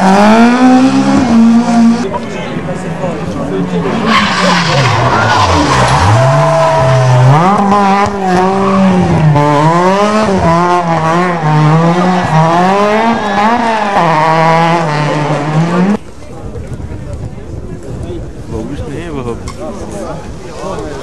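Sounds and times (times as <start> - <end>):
rally car engine revving: 0.0 - 2.3, 3.5 - 16.0.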